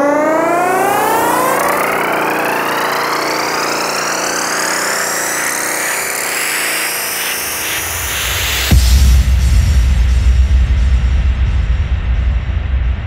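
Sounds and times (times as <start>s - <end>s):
synthesizer sweep rising in pitch: 0.0s - 8.8s.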